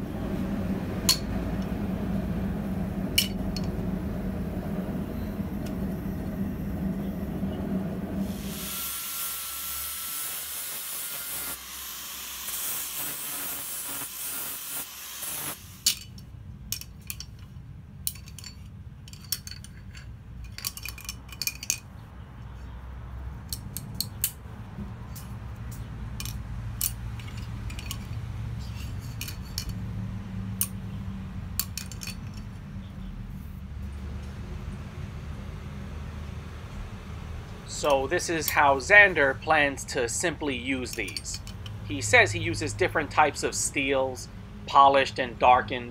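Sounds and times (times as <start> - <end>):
metal tongs clicking and clinking: 15.8 - 21.9, 25.1 - 29.8, 40.8 - 42.1.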